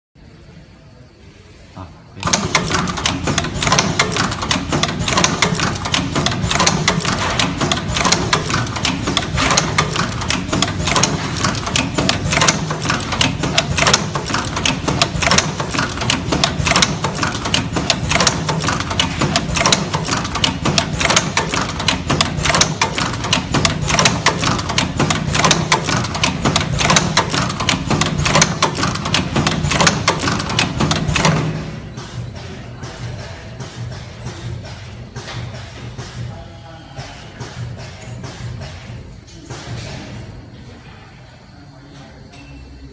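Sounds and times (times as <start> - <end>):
steady machine hum: 0.2 - 42.9
rapid cutting machine clatter: 2.2 - 34.9.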